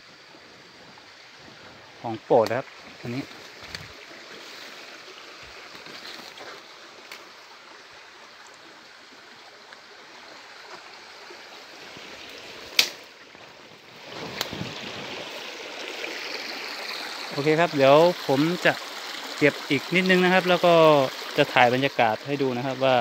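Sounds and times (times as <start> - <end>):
forest stream running: 0.0 - 23.0
sharp click: 12.7 - 13.0.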